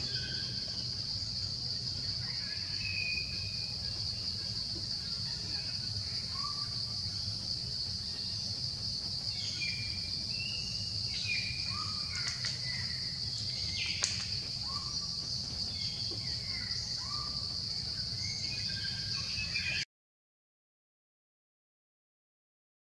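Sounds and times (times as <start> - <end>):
high-pitched insect drone: 0.0 - 19.8
sharp clicks: 12.2 - 12.7, 13.8 - 14.5.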